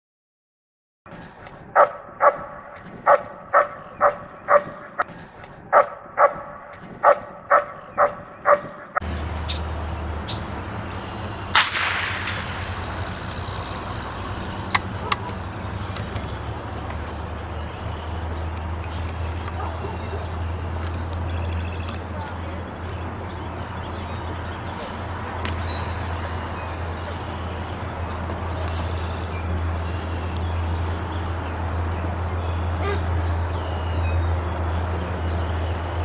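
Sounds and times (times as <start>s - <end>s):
dog barking: 1.8s - 5.0s, 5.7s - 9.0s, 14.9s - 15.4s, 19.5s - 20.4s, 32.8s - 33.1s
steady low rumble: 9.0s - 36.0s
sharp crack: 10.2s - 17.1s.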